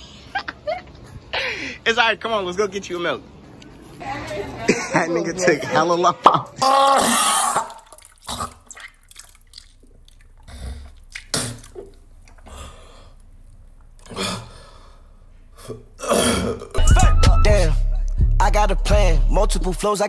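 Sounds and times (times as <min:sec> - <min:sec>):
person retching and vomiting: 0:06.4 - 0:13.3, 0:14.0 - 0:14.8, 0:15.6 - 0:17.1
vomit splashing into water: 0:06.9 - 0:12.4.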